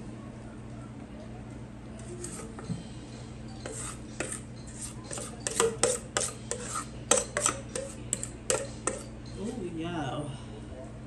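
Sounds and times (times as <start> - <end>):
utensil scraping metal bowl: 2.0 - 2.7, 3.5 - 9.7.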